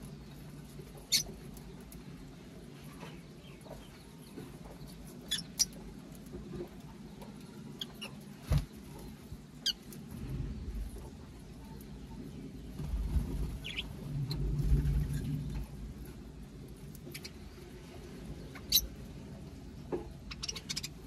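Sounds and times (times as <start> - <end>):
birds chirping and squeaking: 0.0 - 21.0
low steady rumble: 5.2 - 21.0.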